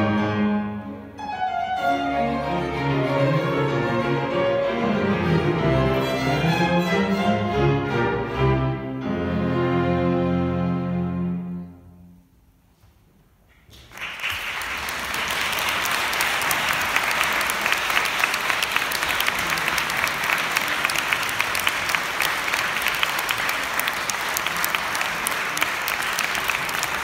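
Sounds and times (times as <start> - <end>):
audience clapping: 13.6 - 27.0.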